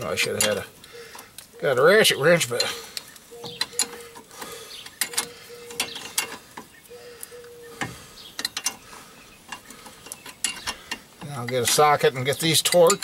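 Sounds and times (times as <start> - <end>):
wrench clinking on metal bolt: 0.2 - 0.7, 3.4 - 4.1, 5.0 - 6.4, 8.4 - 8.8, 9.5 - 13.0.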